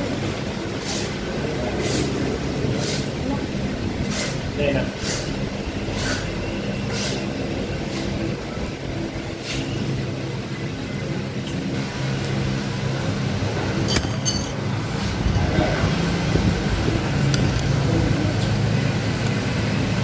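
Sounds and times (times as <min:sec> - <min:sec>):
vehicle engine humming: 0:00.0 - 0:20.0
cutlery clinking on plate: 0:13.9 - 0:14.6.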